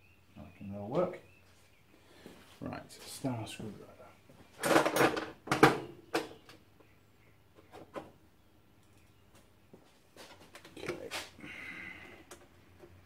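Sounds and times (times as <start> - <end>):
tools clattering on a bench: 4.6 - 6.4.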